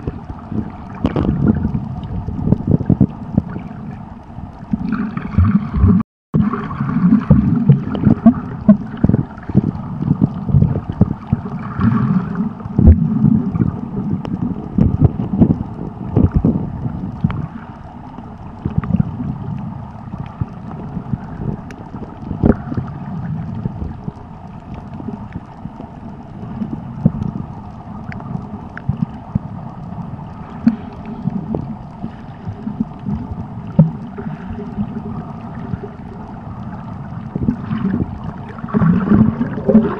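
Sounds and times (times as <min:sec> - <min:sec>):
underwater knocks and pops: 0:00.0 - 0:04.0, 0:04.7 - 0:17.5, 0:18.6 - 0:29.5, 0:30.5 - 0:31.8, 0:32.5 - 0:36.0, 0:37.3 - 0:39.9
muffled underwater rushing: 0:00.0 - 0:39.9.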